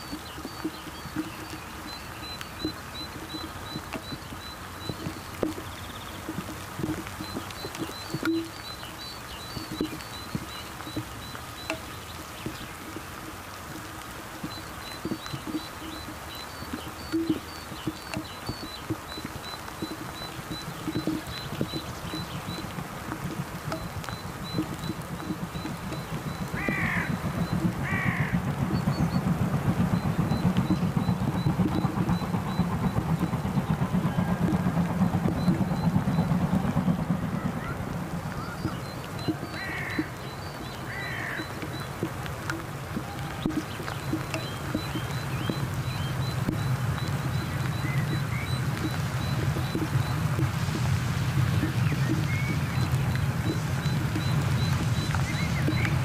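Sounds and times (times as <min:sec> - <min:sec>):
rain dripping and pattering: 0:00.0 - 0:56.0
steam locomotive chuffing: 0:00.0 - 0:56.0
crow cawing: 0:26.6 - 0:27.1, 0:27.8 - 0:28.4, 0:39.6 - 0:40.2, 0:40.9 - 0:41.5.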